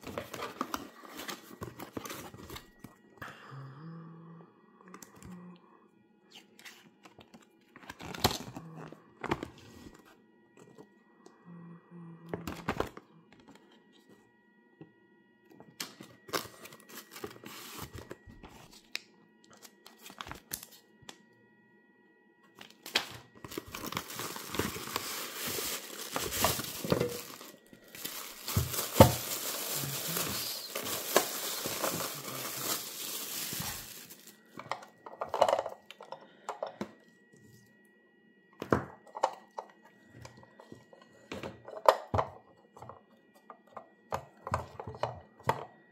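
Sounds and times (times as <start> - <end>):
paper and cardboard rustling: 0.0 - 2.8, 16.3 - 18.9, 22.8 - 34.5
plastic bag crinkling: 22.7 - 35.8.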